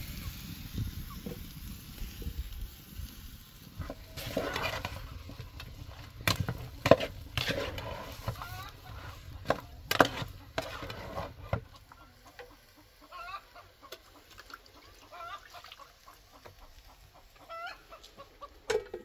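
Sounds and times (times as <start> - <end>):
chickens clucking: 3.8 - 19.0.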